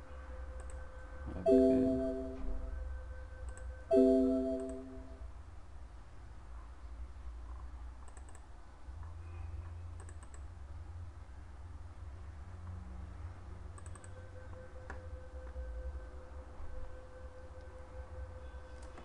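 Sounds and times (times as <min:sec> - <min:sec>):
faint steady tone: 0:00.0 - 0:07.6
low steady hum: 0:00.0 - 0:19.0
computer mouse double-clicks: 0:08.0 - 0:08.5, 0:10.0 - 0:10.5, 0:13.8 - 0:14.2.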